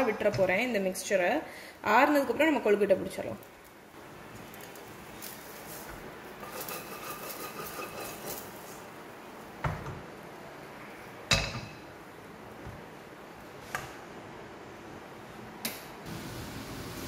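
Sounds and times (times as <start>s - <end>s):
wooden spatula scraping steel pan: 6.4s - 8.8s.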